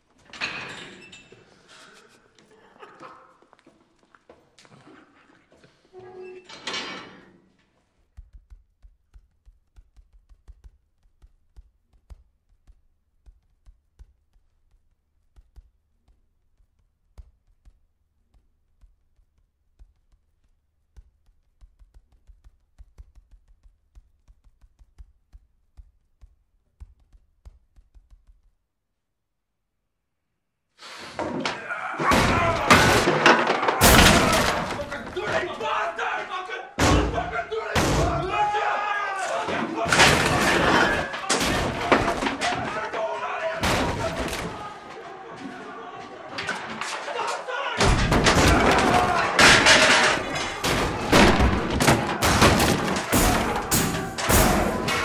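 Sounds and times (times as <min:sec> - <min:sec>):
faint tapping and clicking: 0:08.0 - 0:28.6.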